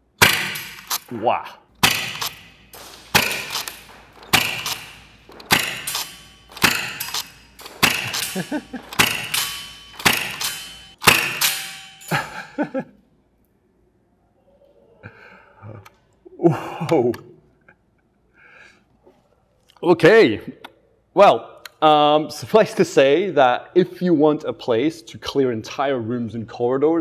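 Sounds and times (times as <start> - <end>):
airsoft shotgun shots: 0.1 - 1.2, 1.8 - 12.0
pellets clattering: 1.8 - 12.2.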